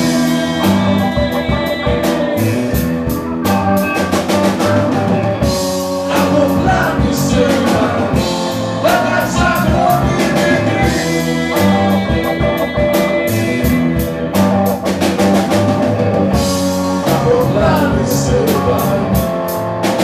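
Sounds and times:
man singing: 0.0 - 3.1, 5.9 - 14.1, 16.9 - 19.5
bass: 0.0 - 20.0
drum kit: 0.0 - 20.0
electric guitar: 0.0 - 20.0
keyboard: 0.0 - 20.0.

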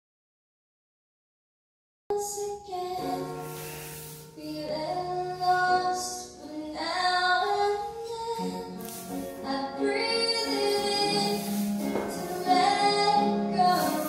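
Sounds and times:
high singing voice: 2.1 - 14.0
instrumental backing: 3.0 - 14.0.

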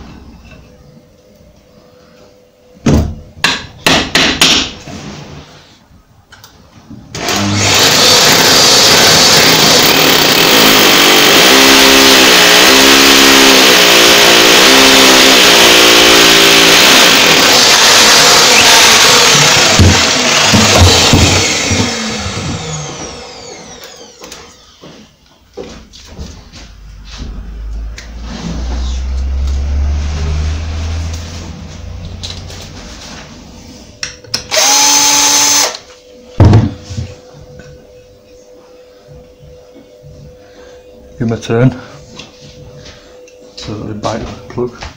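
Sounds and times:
hammer drill grinding into brick: 7.2 - 24.6, 34.5 - 35.8.

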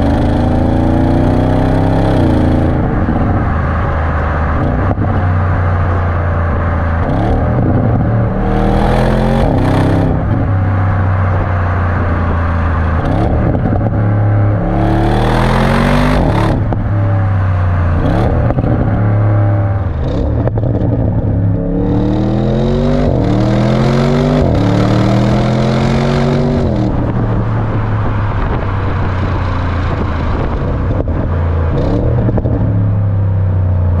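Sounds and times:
car exhaust revving through gear shifts: 0.0 - 34.0.

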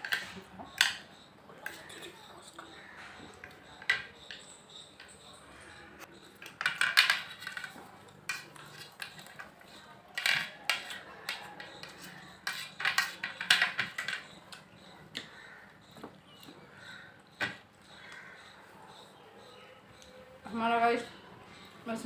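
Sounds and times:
forks scraping and clinking on plates: 0.0 - 15.5.

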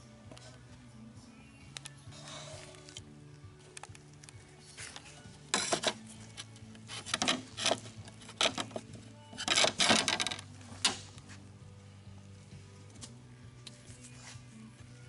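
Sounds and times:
metal spatula scraping on metal sheet: 6.9 - 8.7.

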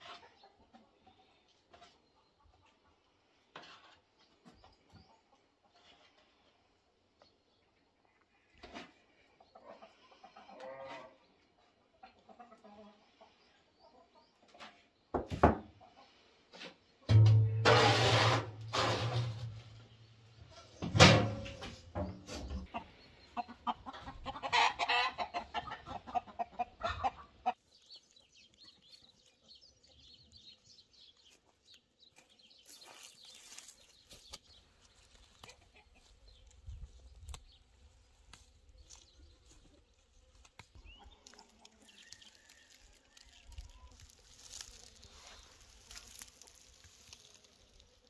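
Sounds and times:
chickens clucking: 0.0 - 6.3, 8.1 - 14.9, 15.8 - 16.7, 20.4 - 30.0, 33.6 - 37.6, 38.4 - 48.0.

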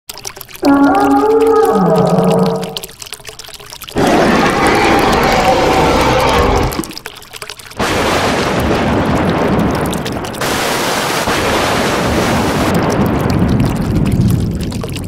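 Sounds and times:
heavy rain: 4.0 - 7.0, 7.8 - 14.8.

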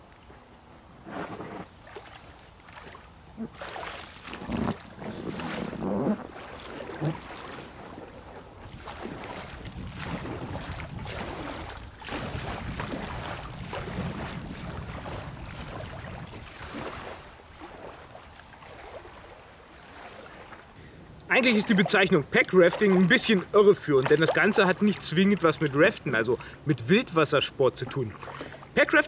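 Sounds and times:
paddle splashing in water: 1.0 - 26.6, 27.8 - 29.0
wind on microphone: 4.3 - 7.8, 8.6 - 17.4.

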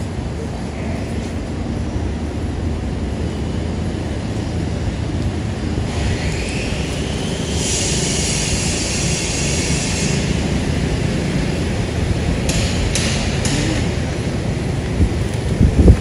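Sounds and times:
low outdoor rumble: 0.0 - 16.0
high hiss: 6.0 - 11.2.

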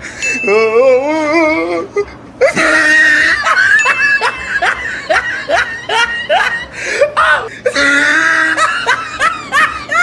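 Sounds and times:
whimpering crying voice: 5.0 - 8.8.

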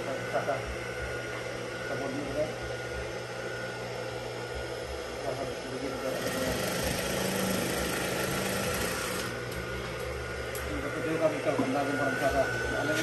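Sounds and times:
sewing machine stitching: 6.1 - 9.3.

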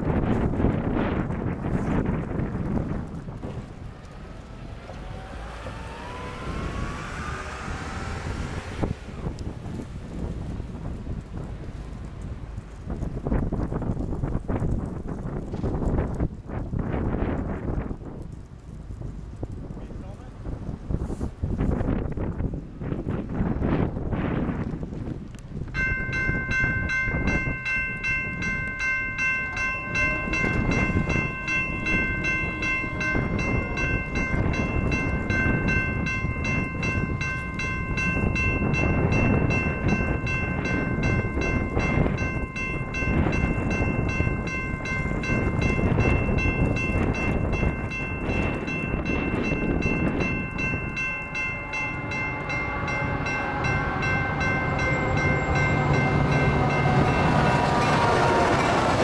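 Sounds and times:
railroad crossing bells ringing: 0.0 - 9.9, 25.7 - 59.0
diesel locomotive engine: 0.0 - 59.0
loud uneven rumbling: 0.0 - 59.0.

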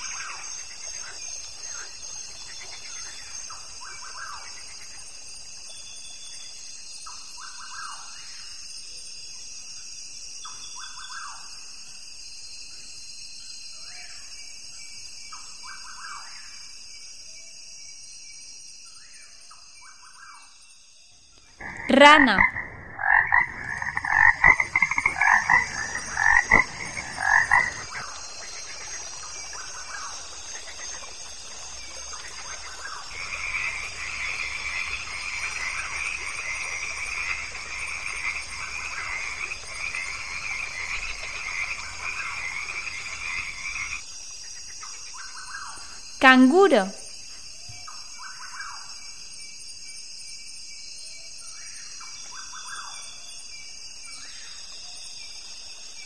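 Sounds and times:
frogs croaking: 0.0 - 8.8, 21.4 - 56.0.

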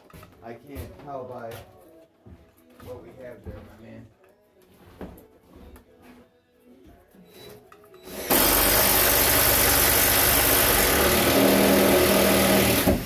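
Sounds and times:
power tool motor running: 8.1 - 13.0.

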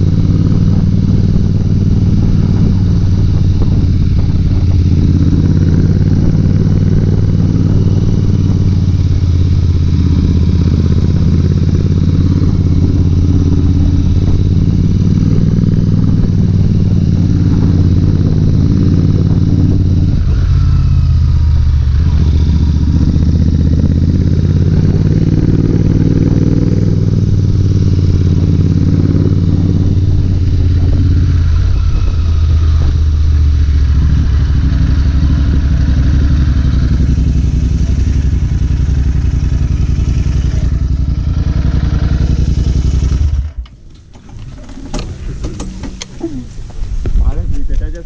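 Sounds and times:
motorcycle engine running: 0.0 - 48.0
road and wind noise: 0.0 - 48.0
faint engine clicks: 43.2 - 48.0.

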